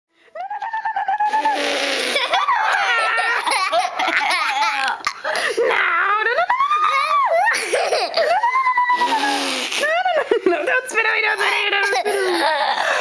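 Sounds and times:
boy laughing: 0.4 - 10.6, 11.8 - 13.0
boy squealing: 6.5 - 9.9.

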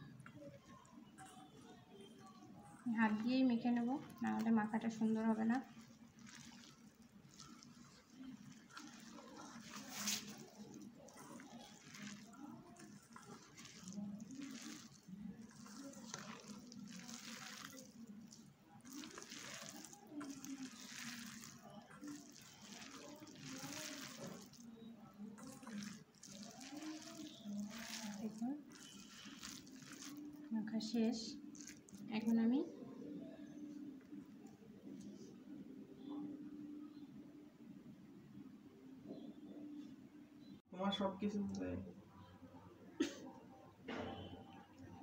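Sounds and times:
hand squishing wet mixture: 0.1 - 35.4.

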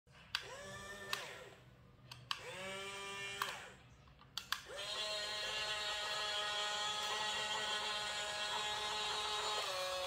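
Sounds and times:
toy motor whining: 0.4 - 1.6, 2.4 - 3.8, 4.6 - 10.0
sharp clicks: 3.4 - 4.7.

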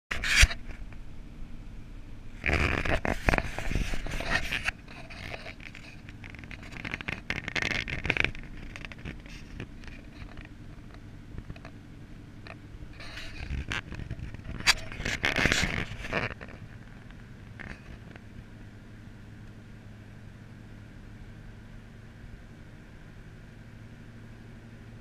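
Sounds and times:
camera handling scraping: 0.1 - 0.7, 2.4 - 11.8, 12.4 - 18.2
car engine and road hum: 0.1 - 25.0.

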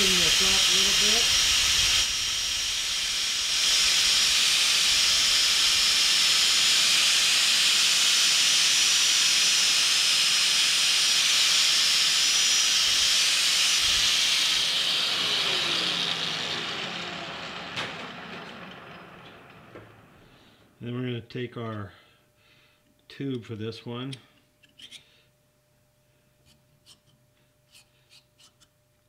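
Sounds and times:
falling whine of tool winding down: 0.0 - 20.6
belt sander hissing on steel: 0.0 - 20.7.

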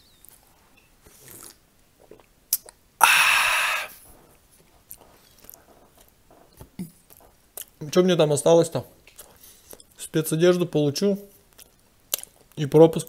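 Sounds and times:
breathy exhale: 3.0 - 4.0.

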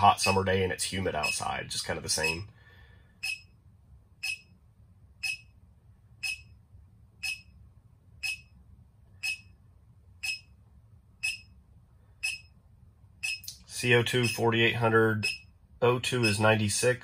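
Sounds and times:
high electronic beep: 0.2 - 0.4, 2.2 - 2.4, 3.2 - 3.6, 4.2 - 4.5, 5.2 - 5.5, 6.2 - 6.6, 7.2 - 7.6, 8.2 - 8.6, 9.2 - 9.6, 10.2 - 10.5, 11.2 - 11.5, 12.2 - 12.6, 13.2 - 13.5, 15.2 - 15.5.

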